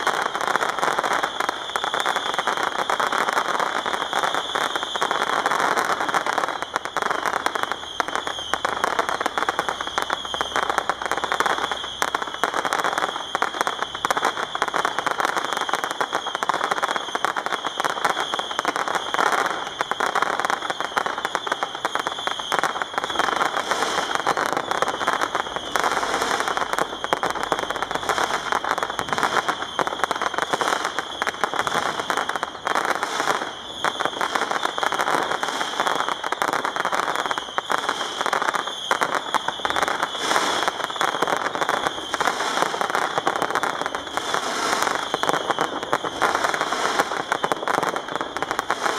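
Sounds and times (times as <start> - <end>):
fireworks crackling and popping: 0.0 - 48.9
steady high hiss: 17.8 - 48.9.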